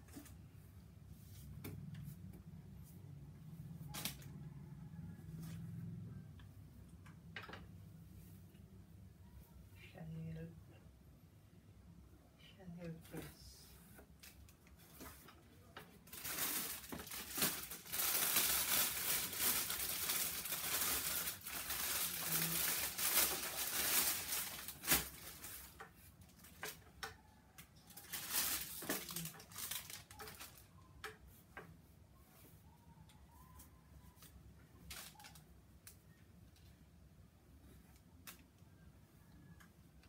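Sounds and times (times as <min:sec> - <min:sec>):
plastic packaging crinkling: 0:16.0 - 0:26.9, 0:27.8 - 0:30.8, 0:34.2 - 0:36.0.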